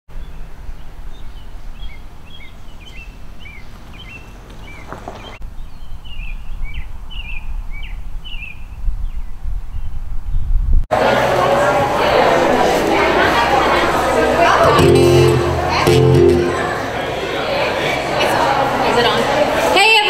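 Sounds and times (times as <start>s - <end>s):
small birds chirping: 0.1s - 10.5s.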